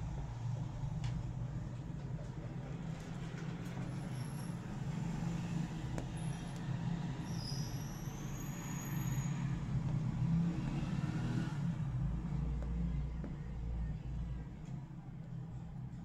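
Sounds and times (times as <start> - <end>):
faint high whistle: 7.2 - 9.5.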